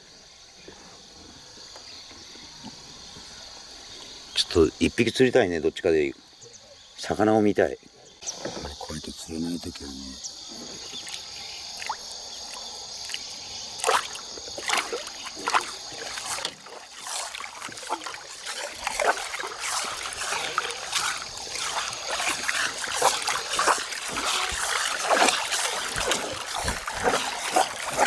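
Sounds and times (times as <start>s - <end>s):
water splashing against boat: 8.2s - 28.0s.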